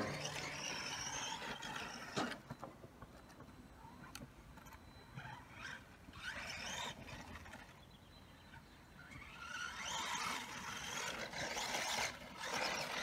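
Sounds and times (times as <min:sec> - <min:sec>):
rc truck electric motor whine: 0:00.0 - 0:13.0.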